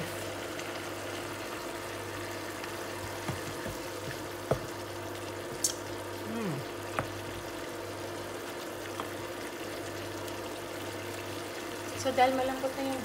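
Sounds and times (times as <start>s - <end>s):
meat simmering in a pan: 0.0s - 13.0s
wooden spatula knocking pan: 3.2s - 4.8s.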